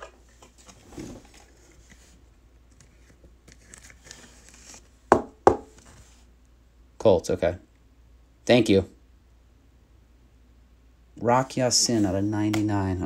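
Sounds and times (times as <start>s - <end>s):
faint plastic rustling: 0.0s - 5.0s.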